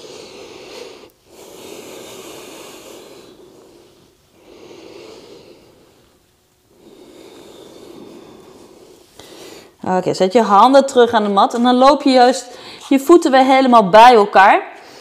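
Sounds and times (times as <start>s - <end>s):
woman breathing slowly and deeply: 0.0s - 9.8s, 12.5s - 12.9s.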